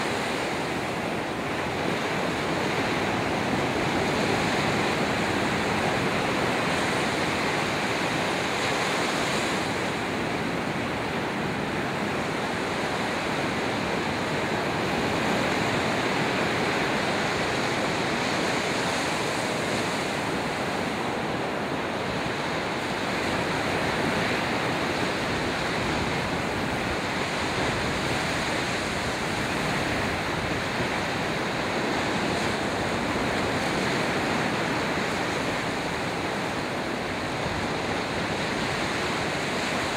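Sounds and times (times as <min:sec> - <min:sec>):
waves breaking on beach: 0:00.0 - 0:39.9.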